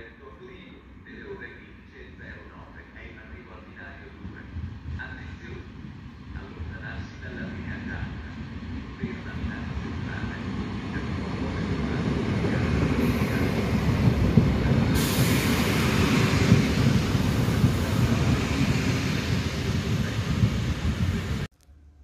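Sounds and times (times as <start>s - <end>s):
diesel railcars passing: 4.2s - 21.5s
rushing hiss: 13.0s - 14.0s, 14.6s - 21.4s.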